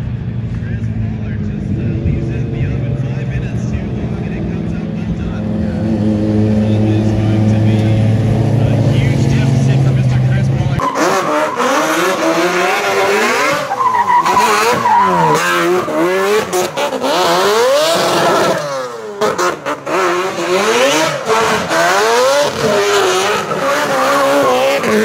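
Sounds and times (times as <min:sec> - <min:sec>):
car engine revving: 0:00.0 - 0:25.0
tyres squealing: 0:10.8 - 0:18.8.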